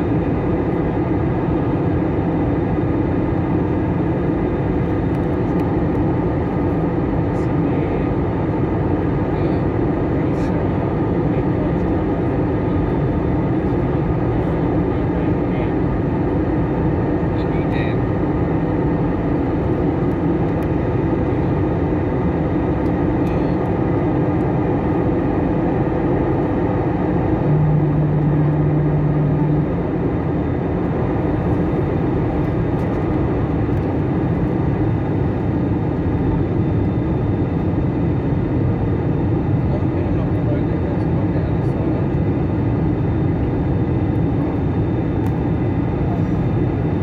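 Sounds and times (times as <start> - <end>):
airliner cabin engine roar: 0.0 - 47.0
low steady tone: 27.2 - 30.9.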